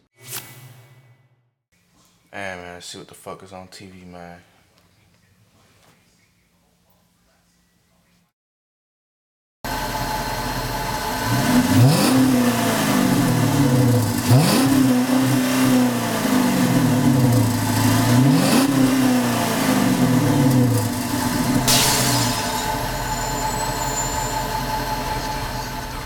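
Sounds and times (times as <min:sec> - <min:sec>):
car engine idling and revving: 0:09.7 - 0:21.7.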